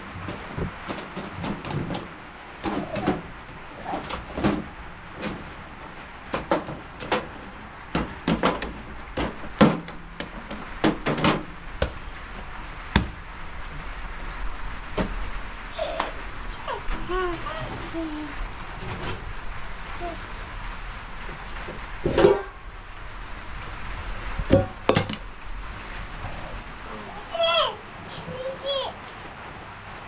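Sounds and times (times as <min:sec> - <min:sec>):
knocks and clatter of hard objects: 0:00.0 - 0:03.3, 0:03.9 - 0:13.2, 0:21.2 - 0:22.6, 0:24.4 - 0:25.3.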